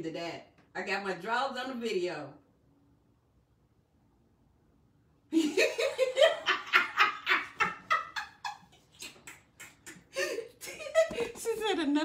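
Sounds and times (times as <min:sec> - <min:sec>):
person laughing hard: 0:05.4 - 0:11.4.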